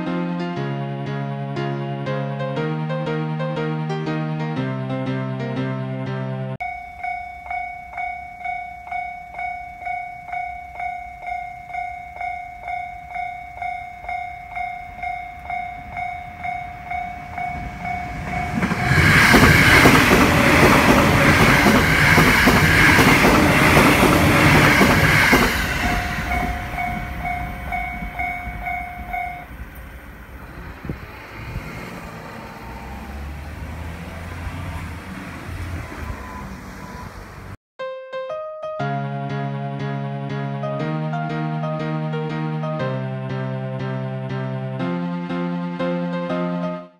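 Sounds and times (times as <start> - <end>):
level crossing bell ringing: 6.6 - 18.9, 25.5 - 29.6
electric train passing: 6.6 - 37.6.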